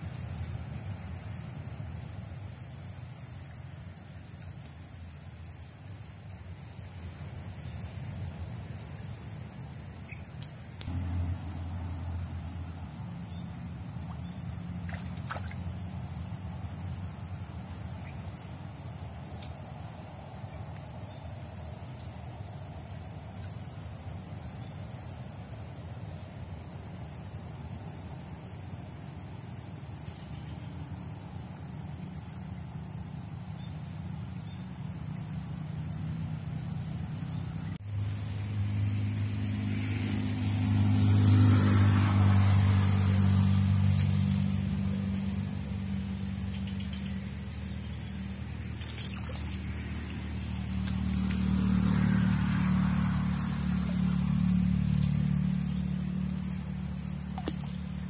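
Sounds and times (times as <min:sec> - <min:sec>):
low steady rumble: 0:00.0 - 0:27.6, 0:42.8 - 0:58.0
insect chorus buzzing: 0:00.0 - 0:58.0.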